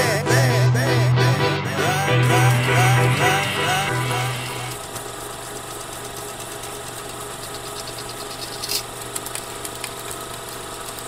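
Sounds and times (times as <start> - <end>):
sharp hit: 0.0 - 4.8
machine-like hum: 0.0 - 11.0.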